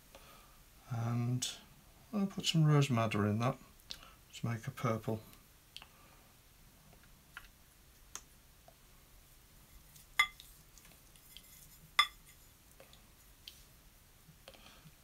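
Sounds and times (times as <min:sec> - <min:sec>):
paintbrush clinking on ceramic palette: 0:10.2 - 0:10.4, 0:11.3 - 0:12.4.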